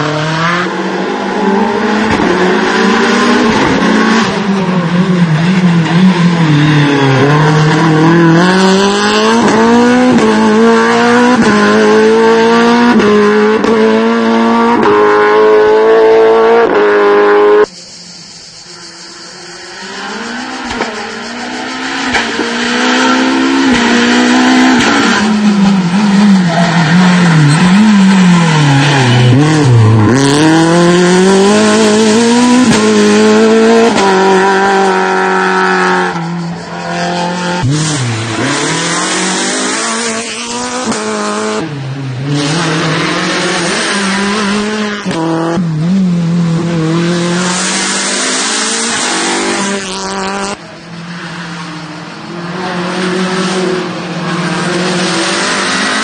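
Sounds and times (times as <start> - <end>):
rally car engine revving: 0.0 - 56.0.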